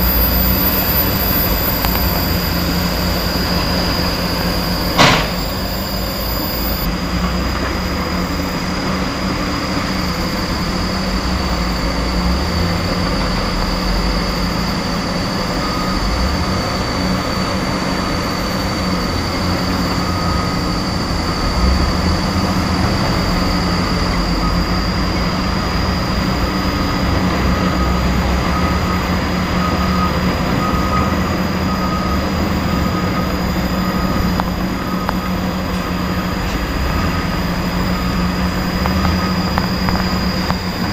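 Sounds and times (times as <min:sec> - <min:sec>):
faint beeping: 0:00.0 - 0:06.9, 0:23.6 - 0:40.9
heavy machinery rumbling: 0:00.0 - 0:40.9.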